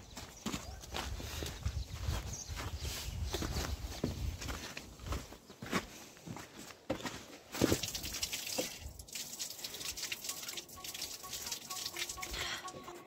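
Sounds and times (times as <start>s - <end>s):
water splashing into bucket: 7.6s - 12.9s.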